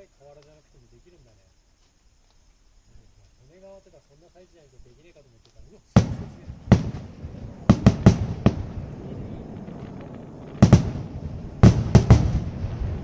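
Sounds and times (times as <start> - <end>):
firework shells booming: 5.9 - 13.0
low rumble of booms: 5.9 - 13.0.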